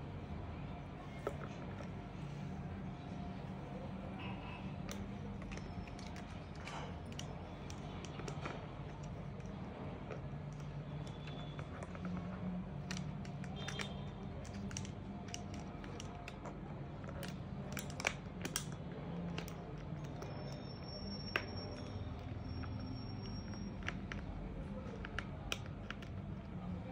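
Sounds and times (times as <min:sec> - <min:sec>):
parrot beak clicking on plastic: 0:12.8 - 0:16.5.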